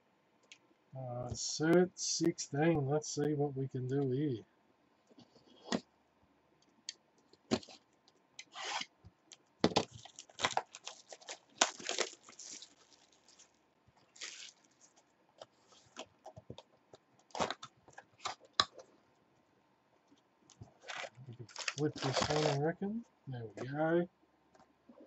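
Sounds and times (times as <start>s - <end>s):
shrink-wrap crackling and tearing: 9.8s - 15.0s, 20.8s - 22.6s.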